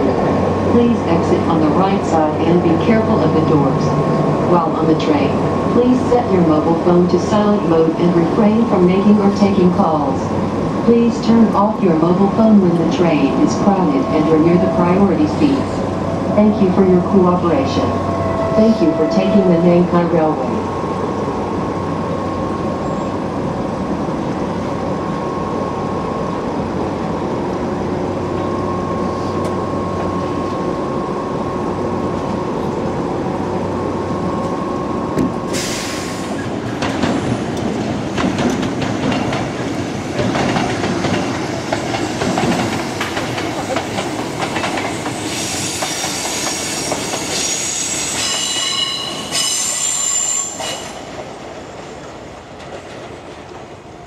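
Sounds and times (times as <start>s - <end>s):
electric train humming: 0.0s - 54.0s
train wheels clicking over rail joints: 36.3s - 47.5s
train wheels squealing: 44.9s - 51.1s.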